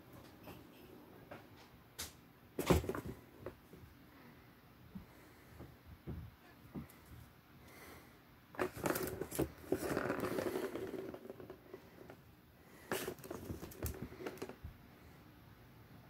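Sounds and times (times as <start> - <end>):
plastic ball rolling on track: 8.7 - 12.1.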